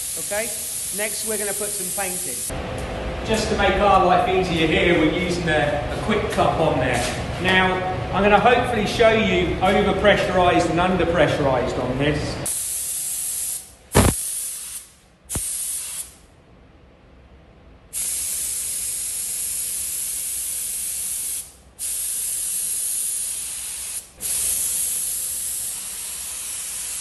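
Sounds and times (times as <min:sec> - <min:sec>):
spray gun hissing: 0:00.0 - 0:02.5, 0:12.5 - 0:16.2, 0:18.0 - 0:27.0.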